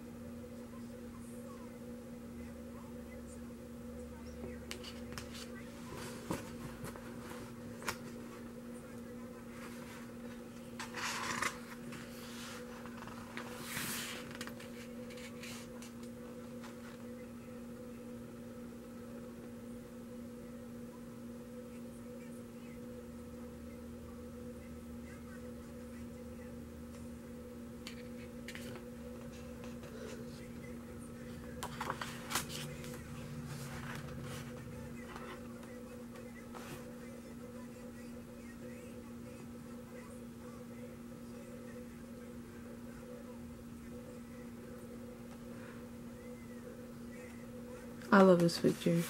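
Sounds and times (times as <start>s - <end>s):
steady low hum: 0.0s - 49.0s
book pages rustling: 9.5s - 15.9s, 31.6s - 35.4s.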